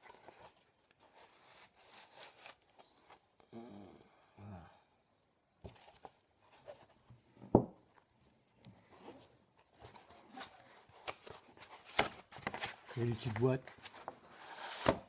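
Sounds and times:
cardboard box and foam rustling: 0.0 - 3.3, 8.9 - 15.0.

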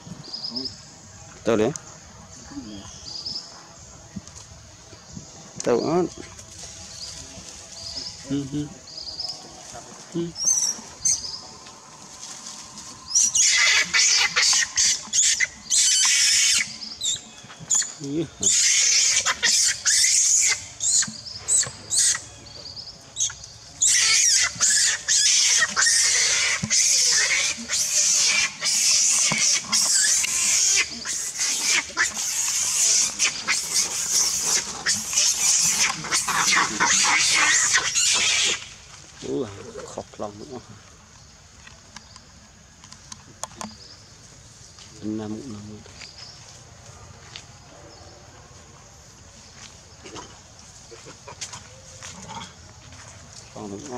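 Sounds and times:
steady high hiss: 0.0 - 46.8
macaques grunting and squeaking: 8.1 - 22.4, 23.2 - 38.8, 50.0 - 52.6
monkey shrieking: 13.1 - 16.8, 18.4 - 22.2, 23.8 - 38.7.

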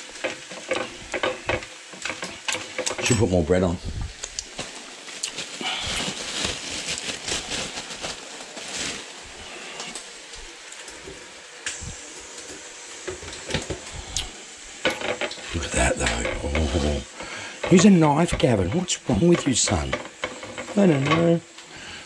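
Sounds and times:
plastic bag crinkling: 4.2 - 10.2.

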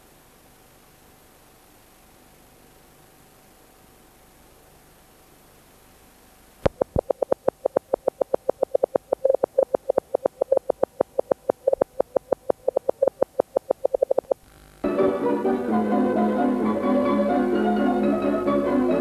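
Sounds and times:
low tape hiss: 0.0 - 19.0
short electronic beeps: 6.8 - 14.4.

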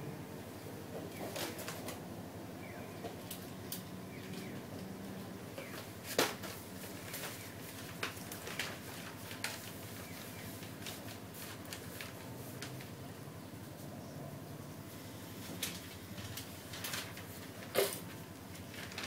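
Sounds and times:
streetcar interior rumble: 0.0 - 5.7.

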